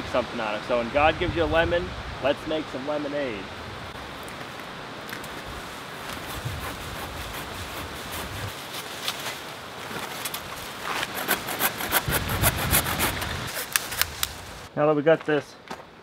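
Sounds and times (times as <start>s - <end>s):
leaves and twigs rustling: 3.4s - 15.8s
hand saw rasping on wood: 6.2s - 8.6s, 10.9s - 13.7s.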